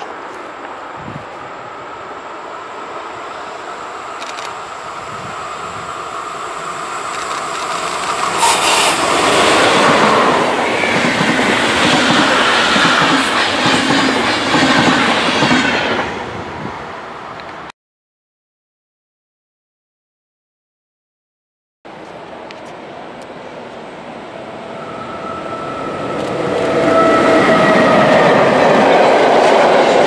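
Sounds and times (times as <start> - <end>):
electric locomotive passing: 0.0 - 17.7, 21.9 - 30.0
train wheels clattering over rails: 7.0 - 15.8.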